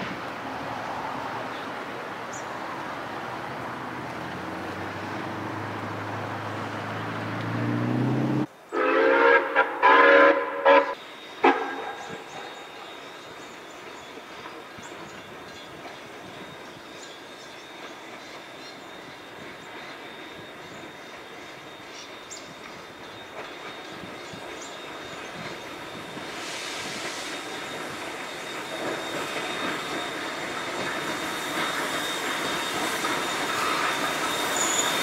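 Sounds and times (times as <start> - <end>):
engine drone rising in pitch: 3.4 - 8.5
steam locomotive whistle blasts: 8.7 - 13.0, 23.3 - 35.0.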